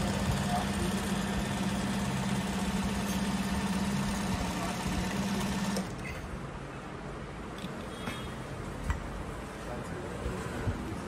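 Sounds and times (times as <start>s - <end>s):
sewing machine running: 0.0s - 6.0s.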